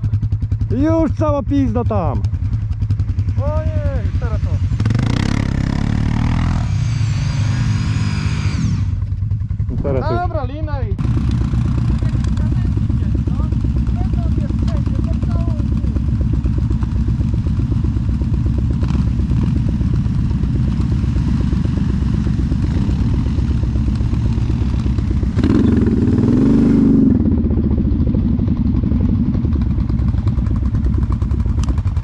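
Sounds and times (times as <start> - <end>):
atv engines running: 0.0 - 32.0
engine revving: 0.7 - 32.0.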